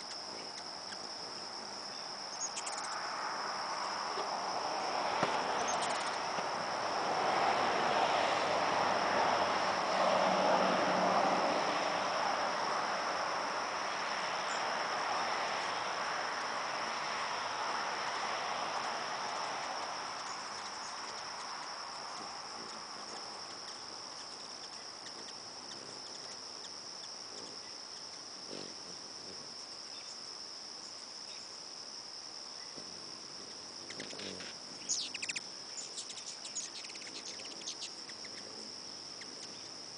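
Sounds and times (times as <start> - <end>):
insect chorus trilling: 0.0 - 39.9
broad rushing noise: 3.0 - 21.2.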